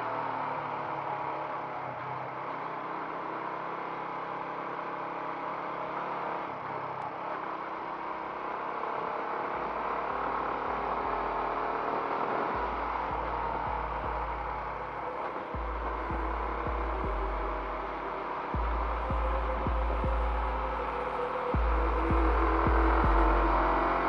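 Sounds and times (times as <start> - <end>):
road and air noise: 7.0 - 24.0
motorbike engine running: 8.6 - 24.0
low rumble: 12.5 - 24.0.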